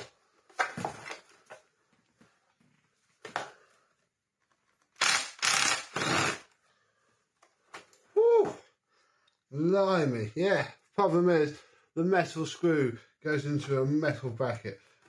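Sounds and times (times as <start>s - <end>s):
harsh grating of metal screw: 5.0s - 6.6s.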